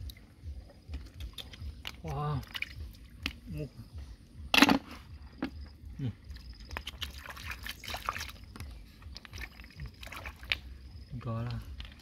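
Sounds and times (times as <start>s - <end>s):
hands sloshing in stream water: 6.7s - 10.8s.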